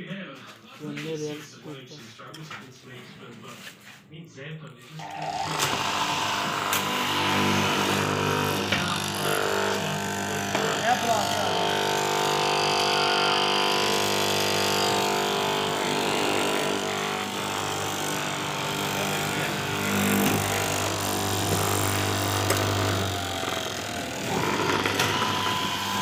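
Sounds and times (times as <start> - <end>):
blade cutting through fabric: 5.0 - 26.0
cloth cutting machine motor hum: 5.0 - 26.0.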